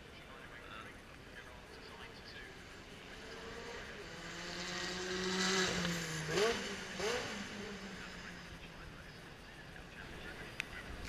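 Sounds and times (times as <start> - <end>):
racing car engine passing: 1.4 - 11.0.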